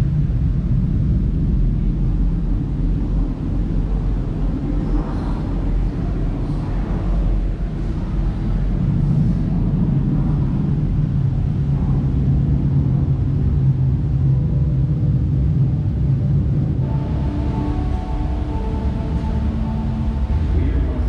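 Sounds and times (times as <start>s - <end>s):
steady low rumble: 0.0s - 21.0s
sustained musical tones: 16.6s - 21.0s.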